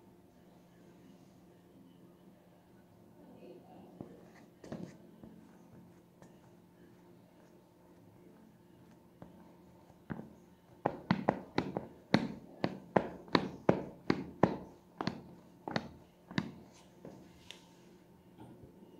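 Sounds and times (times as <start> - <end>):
running shoes on tile floor: 8.8 - 17.4.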